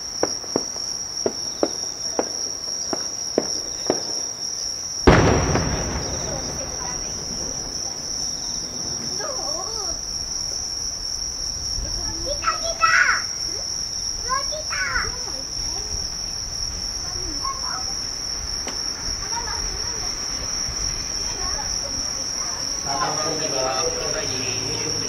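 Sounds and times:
crickets chirring: 0.0 - 25.0
firework shell boom: 5.1 - 9.3.

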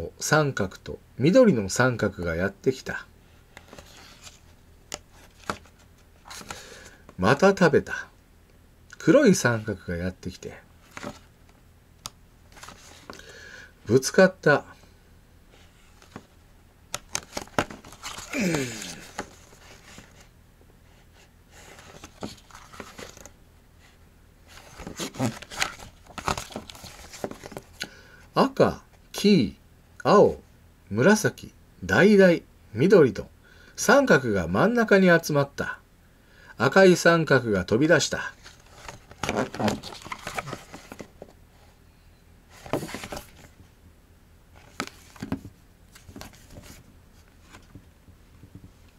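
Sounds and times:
book pages rustling and turning: 3.5 - 7.1, 10.8 - 11.3, 12.5 - 13.2, 15.6 - 20.3, 21.1 - 23.4, 24.5 - 27.8, 38.3 - 41.4, 42.5 - 43.7, 44.6 - 48.8.

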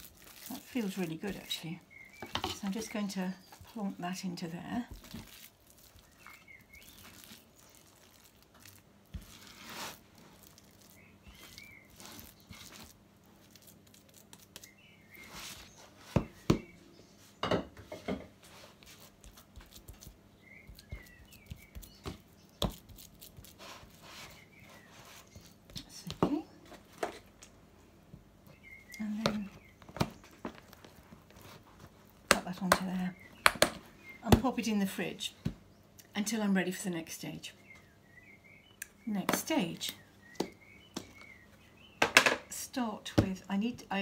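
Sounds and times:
hands handling wet pulp: 0.0 - 16.7, 18.4 - 27.6, 28.4 - 34.5.

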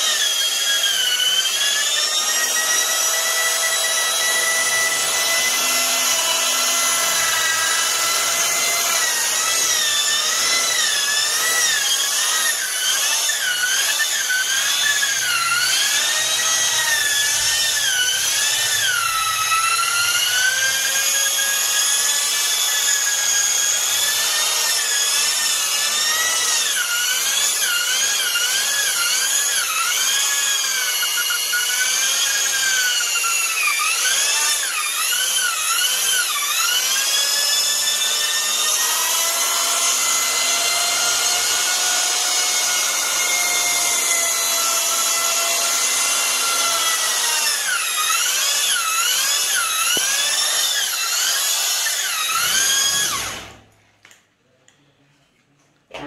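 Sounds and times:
electric drill mixing mortar: 0.0 - 53.8.

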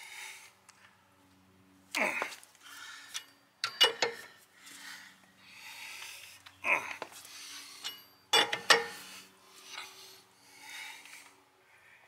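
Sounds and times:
lug wrench clanking on nuts: 3.1 - 4.4, 7.8 - 9.0.

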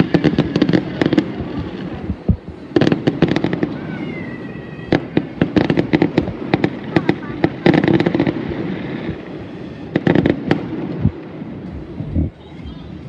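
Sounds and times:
fireworks bangs and crackles: 0.0 - 13.0
firework whistle: 2.7 - 11.1.

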